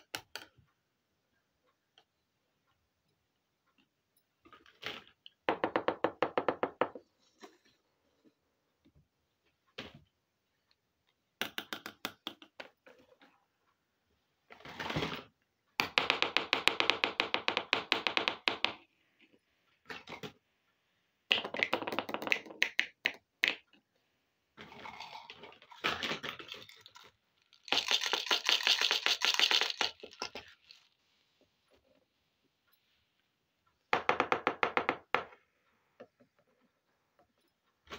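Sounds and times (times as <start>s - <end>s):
plastic toy pieces clicking: 26.4s - 30.9s.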